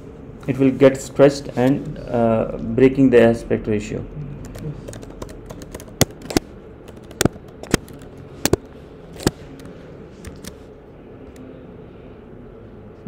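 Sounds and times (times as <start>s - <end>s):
keyboard key clicks: 4.9s - 9.4s.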